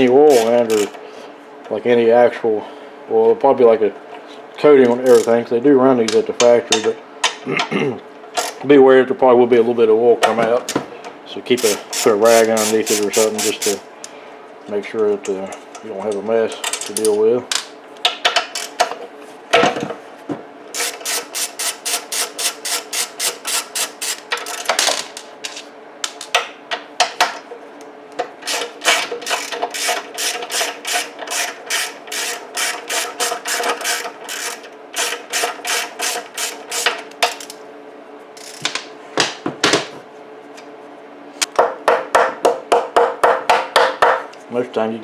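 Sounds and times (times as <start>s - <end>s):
hand ratchet clicking: 0.3s - 1.0s, 5.0s - 5.4s, 8.4s - 8.6s, 11.6s - 13.8s, 18.4s - 19.0s, 28.4s - 37.6s, 38.4s - 38.7s.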